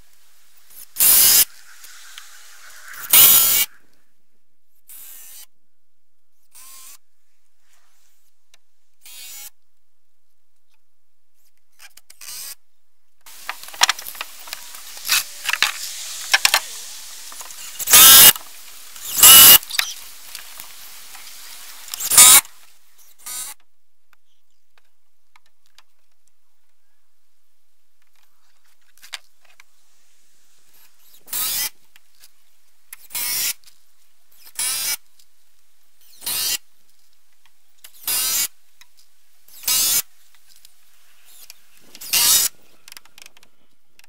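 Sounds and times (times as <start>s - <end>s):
cordless drill driving screws: 13.3s - 22.4s, 42.0s - 42.5s.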